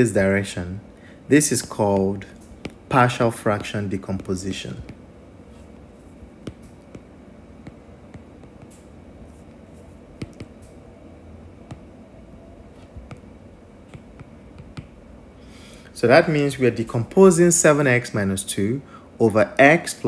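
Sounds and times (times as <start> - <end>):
faint steady hum: 0.0 - 20.0
stylus tapping on glass screen: 2.4 - 2.9, 6.4 - 8.9, 10.2 - 10.8, 11.7 - 11.9, 13.9 - 15.0.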